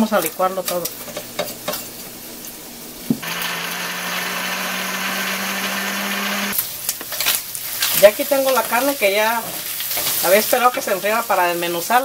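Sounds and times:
blender motor running: 3.2 - 6.6.

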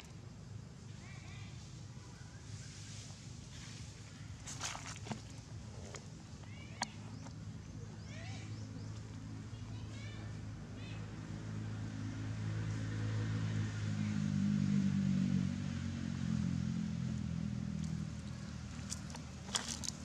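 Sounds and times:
vehicle engine passing: 10.4 - 20.0.

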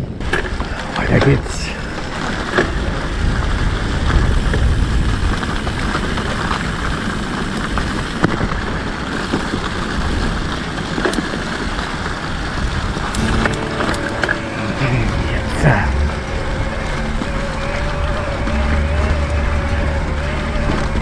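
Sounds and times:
bike tyres rustling over leaves: 0.2 - 21.0
low rumble: 13.0 - 21.0.

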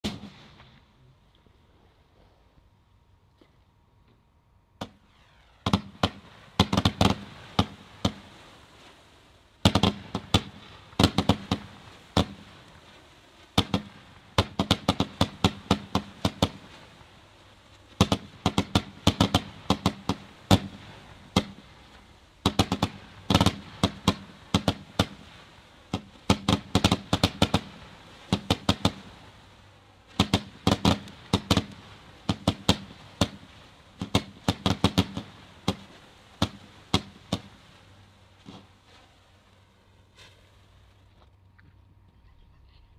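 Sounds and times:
firework cake bangs: 0.0 - 1.0, 4.8 - 9.0, 9.6 - 17.1, 17.9 - 29.4, 30.1 - 37.7.

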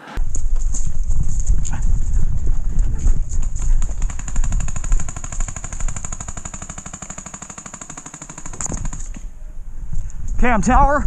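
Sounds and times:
paintball markers firing rapidly: 3.3 - 9.3.

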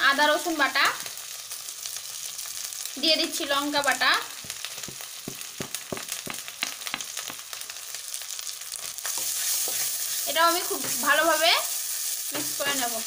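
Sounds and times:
paste sizzling in hot oil: 0.0 - 13.0
wooden spatula scraping a pan: 9.0 - 12.9.

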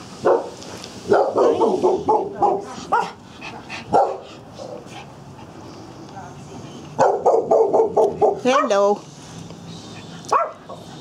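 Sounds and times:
dogs barking: 0.2 - 3.2, 3.9 - 4.8, 7.0 - 8.9, 10.3 - 10.9.

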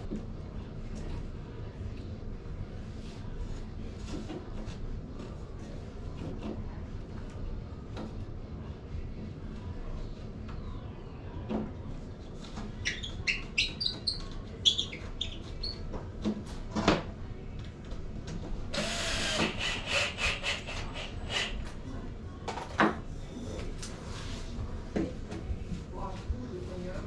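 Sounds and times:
power drill whining: 18.8 - 21.5.

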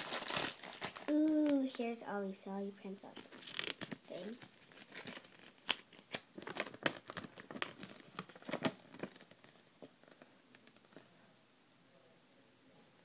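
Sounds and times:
packaging crinkling and rustling: 0.0 - 1.8, 3.0 - 11.0.

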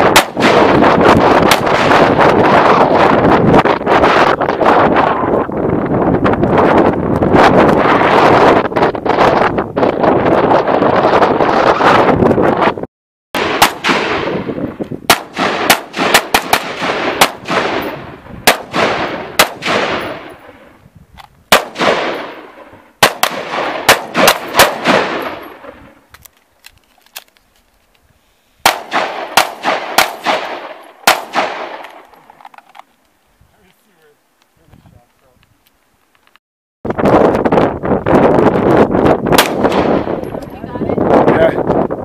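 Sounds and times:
rifle shots echoing: 0.0 - 3.0, 13.4 - 20.7, 21.5 - 26.0, 28.6 - 32.2, 39.4 - 40.4.

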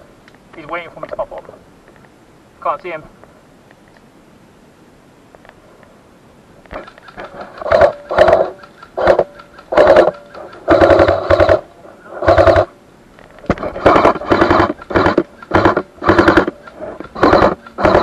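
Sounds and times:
airsoft rifle firing bursts: 7.0 - 12.7, 13.8 - 18.0.

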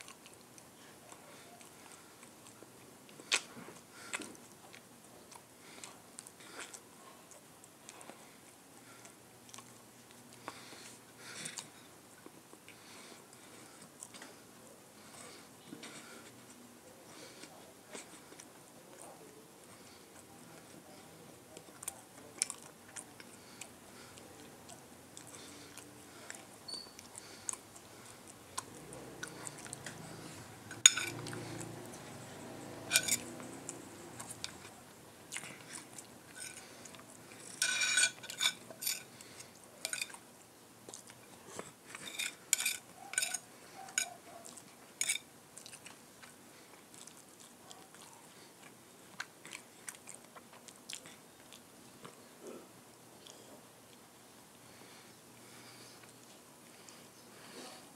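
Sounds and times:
close chewing: 0.0 - 57.9
cutlery clinking on ceramic plate: 30.8 - 31.2, 32.9 - 33.3, 37.5 - 39.1, 39.9 - 40.2, 42.0 - 43.4.

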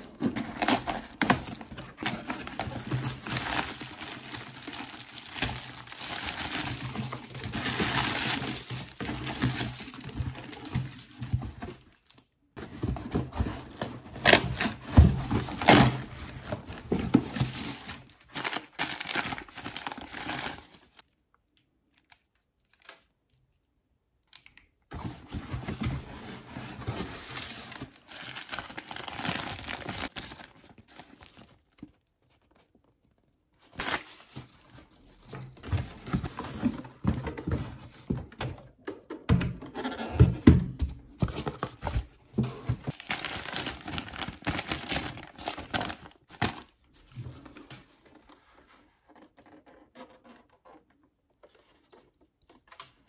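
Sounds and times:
plastic bags crinkling: 0.0 - 12.1, 17.8 - 21.0, 27.7 - 31.6, 42.9 - 46.6.

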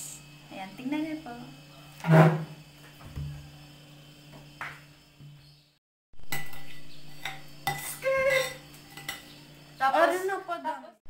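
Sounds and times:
metal spoons clinking on glass: 6.3 - 9.3.

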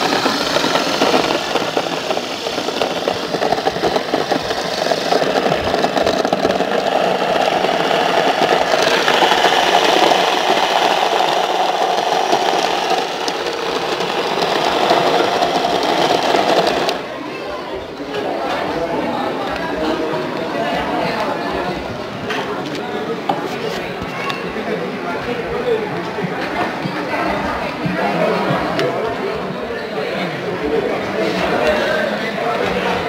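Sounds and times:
electric grain grinder running: 0.0 - 17.1.

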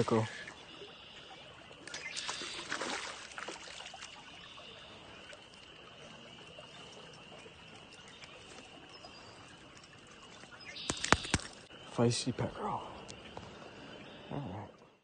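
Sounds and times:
water trickling and dripping: 0.0 - 15.0
fish splashing at surface: 1.8 - 4.4, 10.2 - 11.7.

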